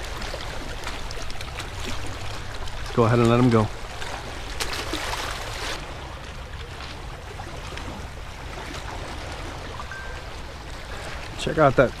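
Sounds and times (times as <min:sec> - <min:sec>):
seawater washing against rocks: 0:00.0 - 0:06.1.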